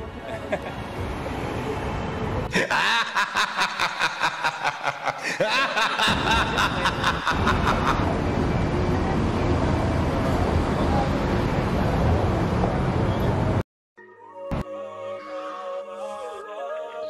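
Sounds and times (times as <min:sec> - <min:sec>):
street traffic noise: 0:00.0 - 0:13.6
snickering laughter: 0:02.5 - 0:08.1.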